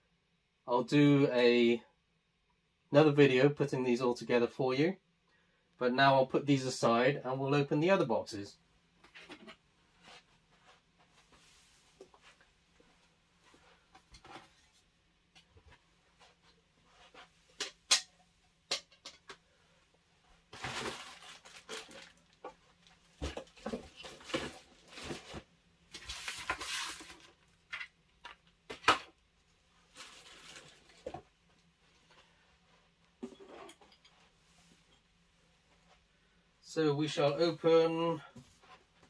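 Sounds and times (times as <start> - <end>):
rustling: 19.5 - 28.5, 29.4 - 36.4.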